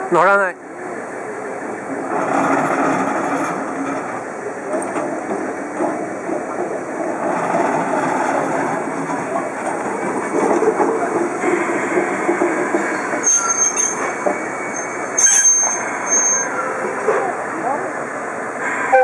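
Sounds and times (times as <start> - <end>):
locomotive running gear rumbling: 1.6 - 17.9
high wheel squeals: 12.8 - 17.1.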